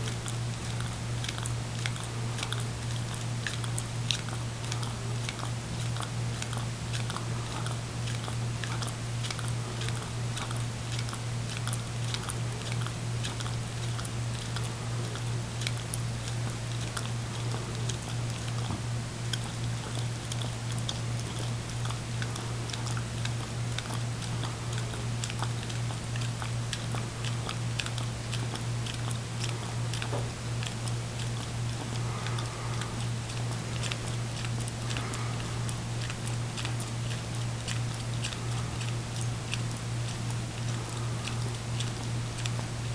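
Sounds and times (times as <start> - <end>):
dog licking wet clicks: 0.0 - 42.9
steady low hum: 0.0 - 42.9.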